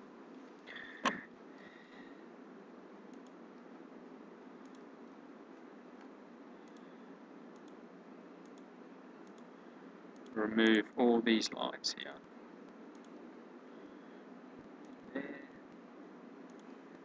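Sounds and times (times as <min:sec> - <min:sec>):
steady low hiss: 0:00.0 - 0:17.0
computer mouse clicks: 0:03.1 - 0:03.7, 0:04.6 - 0:04.9, 0:06.0 - 0:06.9, 0:07.5 - 0:07.8, 0:08.4 - 0:09.5, 0:10.1 - 0:10.4, 0:12.6 - 0:13.2, 0:14.8 - 0:15.0, 0:16.4 - 0:17.0.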